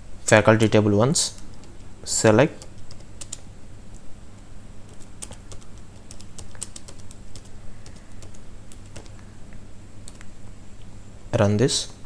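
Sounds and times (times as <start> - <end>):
keyboard typing clicks: 2.6 - 4.0, 4.9 - 9.2, 10.0 - 10.3.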